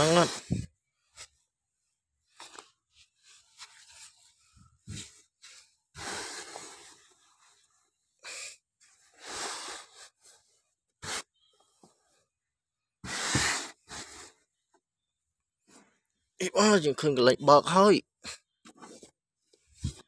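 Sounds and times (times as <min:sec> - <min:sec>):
hand scraping sand: 0:00.0 - 0:00.6, 0:03.3 - 0:07.9, 0:09.0 - 0:11.7, 0:13.0 - 0:14.4.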